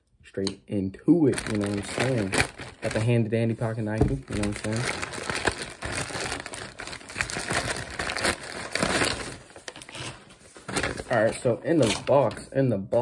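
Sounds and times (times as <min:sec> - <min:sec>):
packaging crinkling and tearing: 0:01.2 - 0:12.2
knife cutting package: 0:01.3 - 0:03.1.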